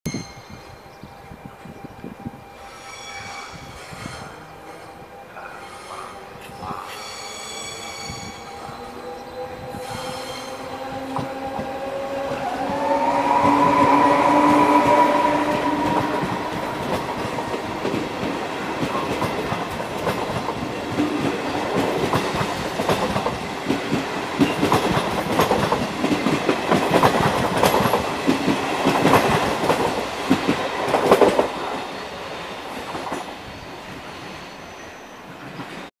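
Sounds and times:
electric locomotive motors whining: 0:00.6 - 0:35.1
train wheels clattering over rail joints: 0:15.8 - 0:31.6.

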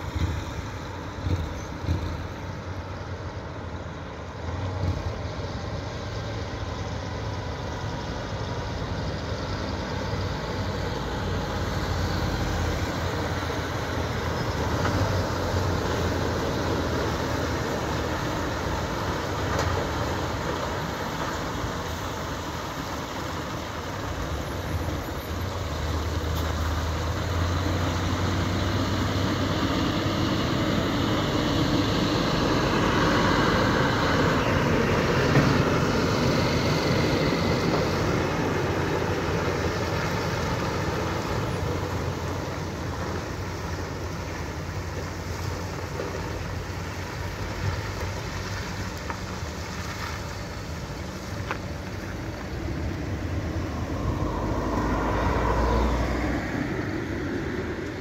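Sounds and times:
diesel truck engines humming: 0:00.0 - 0:58.0.

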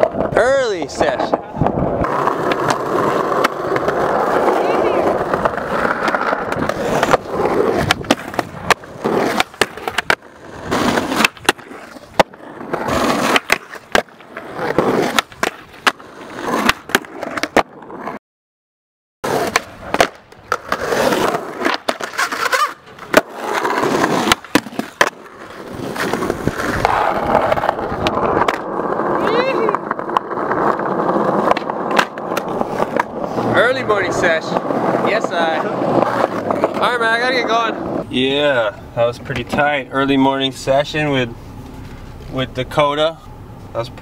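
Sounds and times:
skateboard trucks grinding ledge: 0:00.0 - 0:18.2, 0:19.2 - 0:42.0
skateboard wheels rolling on asphalt: 0:00.0 - 0:18.2, 0:19.2 - 0:44.0
skateboard pops and clacks: 0:01.2 - 0:18.0, 0:19.3 - 0:33.2.

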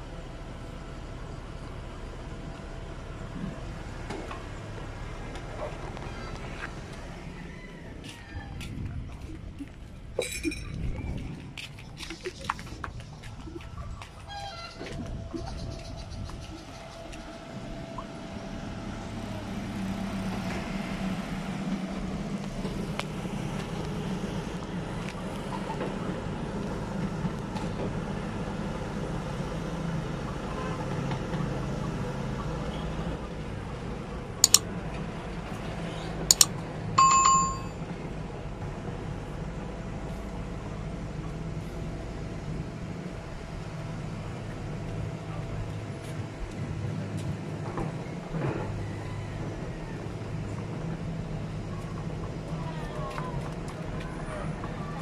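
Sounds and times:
excavator diesel engine running: 0:00.0 - 0:10.2, 0:12.7 - 0:55.0
sharp clicks: 0:34.4 - 0:34.7, 0:36.3 - 0:36.5
short bell-like ring: 0:37.0 - 0:37.8.

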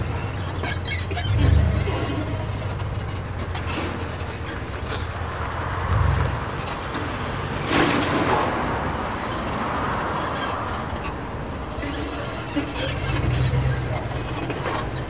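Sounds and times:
street traffic: 0:00.0 - 0:15.0
vehicle passing by: 0:03.6 - 0:14.8.

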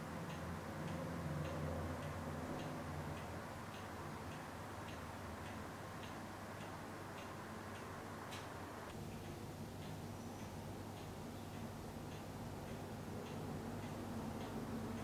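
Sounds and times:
faint regular ticking: 0:00.0 - 0:15.0.

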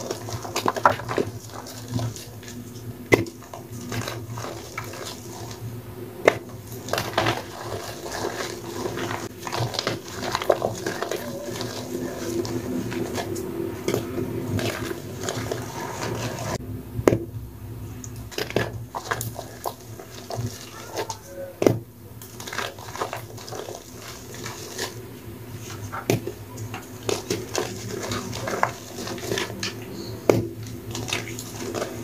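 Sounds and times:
chalk powder crunching: 0:06.6 - 0:16.6, 0:22.3 - 0:29.6.

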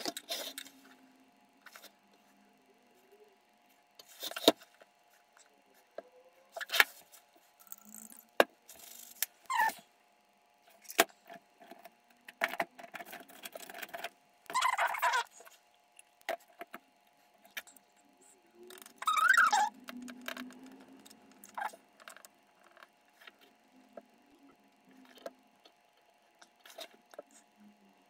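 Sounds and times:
faint steady hum: 0:00.0 - 0:28.0.

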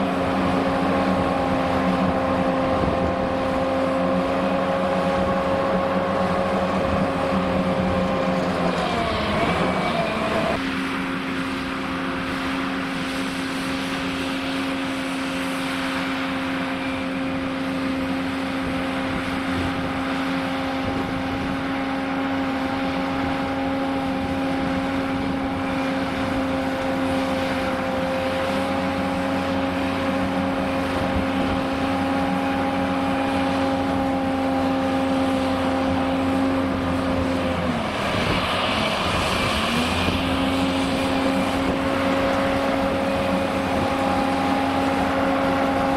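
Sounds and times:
excavator diesel engine and hydraulics: 0:00.0 - 0:45.9
bucket digging rush: 0:35.6 - 0:45.9.

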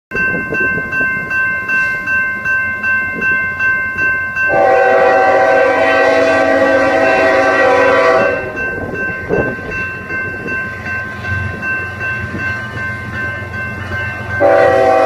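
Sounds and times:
bell ringing: 0:00.1 - 0:05.0, 0:08.2 - 0:15.0
train horn blast: 0:04.5 - 0:08.6, 0:14.4 - 0:15.0.

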